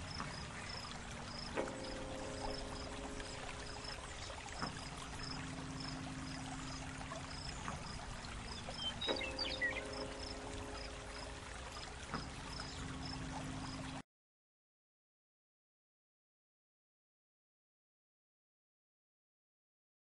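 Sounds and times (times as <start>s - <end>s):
soft watery hiss: 0.0s - 14.0s.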